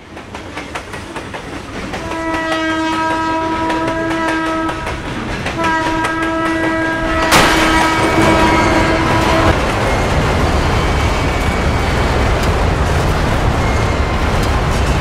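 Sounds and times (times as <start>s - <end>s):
train wheels clicking on rails: 0.0s - 15.0s
train horn blasts: 2.0s - 9.6s
loud bang: 7.2s - 9.5s.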